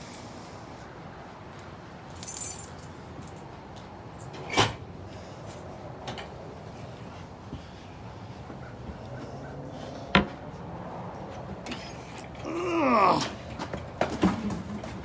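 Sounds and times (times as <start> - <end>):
outdoor background noise: 0.0 - 15.0
metallic jingle: 2.2 - 3.4.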